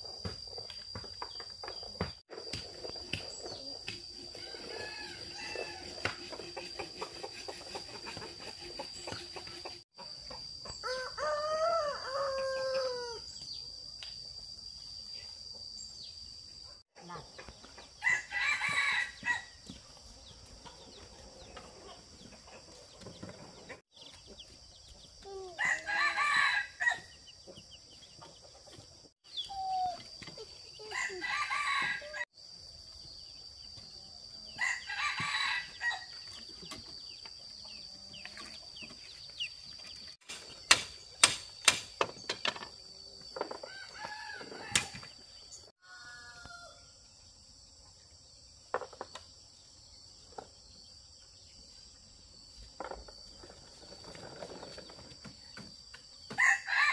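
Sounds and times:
rooster crowing: 0:04.3 - 0:06.1, 0:10.8 - 0:13.3, 0:18.0 - 0:19.6, 0:25.6 - 0:27.1, 0:30.8 - 0:32.2, 0:34.6 - 0:36.1, 0:45.8 - 0:46.9, 0:56.3 - 0:56.9.

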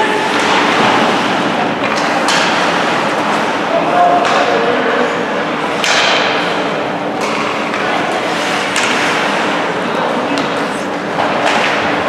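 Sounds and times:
arena hall noise: 0:00.0 - 0:12.0
skates sticks and puck knocking: 0:07.2 - 0:09.4, 0:10.4 - 0:12.0.

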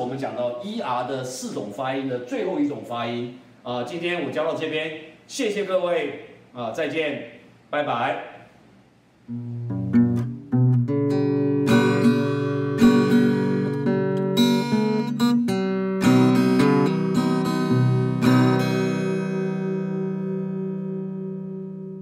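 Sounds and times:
acoustic guitar strumming chords: 0:09.3 - 0:22.0.

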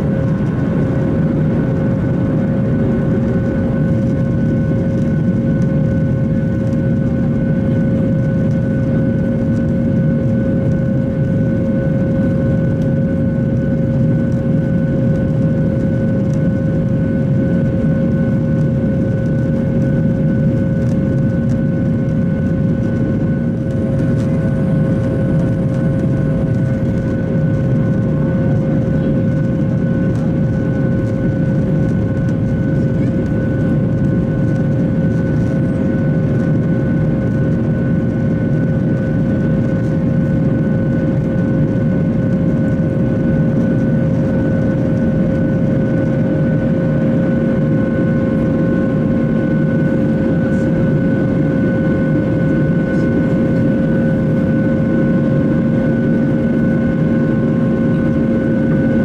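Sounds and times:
jet engines droning in cabin: 0:00.0 - 0:59.0
low rumble of air: 0:00.0 - 0:59.0.

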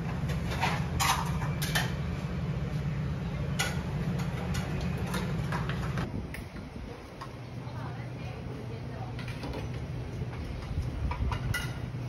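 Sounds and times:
dishes and utensils clinking: 0:00.0 - 0:02.1, 0:03.5 - 0:06.1, 0:10.6 - 0:12.0
steady low hum: 0:00.0 - 0:12.0.

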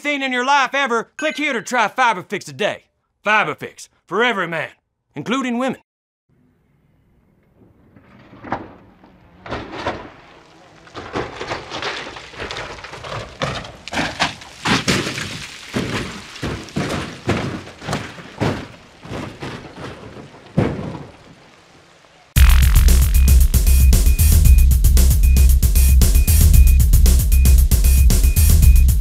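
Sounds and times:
car body hitting ground: 0:07.6 - 0:21.4
glass breaking: 0:09.4 - 0:19.9.

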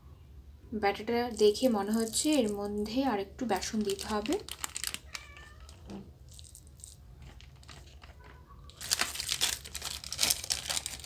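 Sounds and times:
wet crunching of mixed cabbage: 0:03.6 - 0:05.3, 0:06.2 - 0:11.0.

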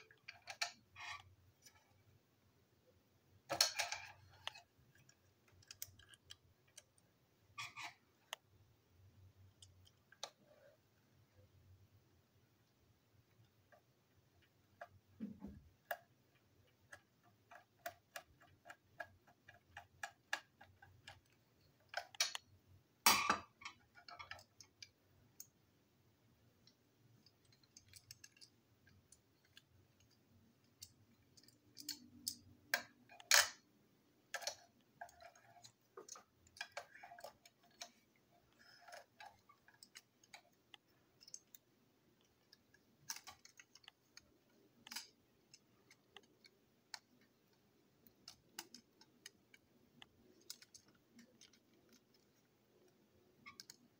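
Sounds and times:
plastic parts being handled: 0:03.3 - 0:08.6, 0:26.4 - 0:53.9.

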